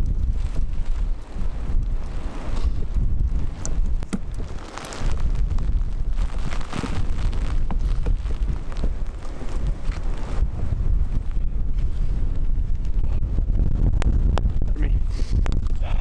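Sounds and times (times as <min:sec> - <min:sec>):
hail and rain ticking: 0:00.0 - 0:10.4
wind buffeting microphone: 0:00.0 - 0:16.0.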